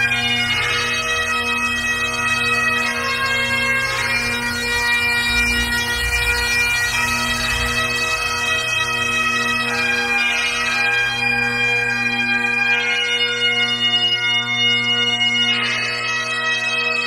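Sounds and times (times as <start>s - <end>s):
bagpipe music with drones: 0.0s - 17.0s.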